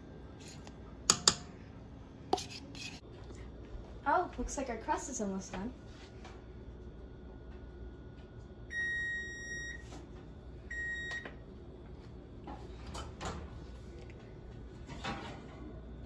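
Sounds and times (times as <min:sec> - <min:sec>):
oven timer beeping: 0:08.7 - 0:09.9, 0:10.7 - 0:11.4.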